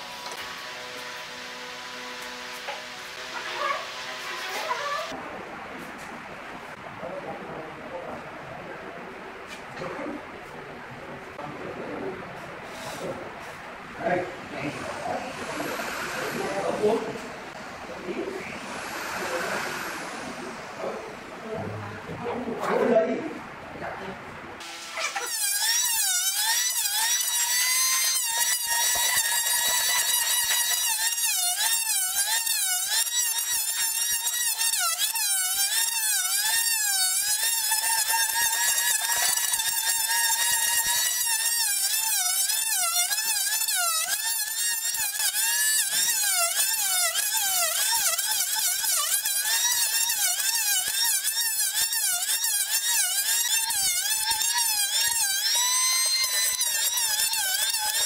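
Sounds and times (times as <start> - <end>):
planer cutting wood hiss: 14.8 - 17.3, 18.5 - 21.2, 24.6 - 58.0
electric planer motor whine: 43.0 - 58.0.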